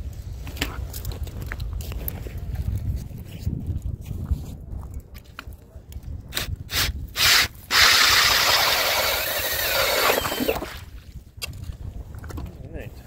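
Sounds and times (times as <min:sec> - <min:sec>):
cordless drill grinding through ice: 0:06.3 - 0:10.8.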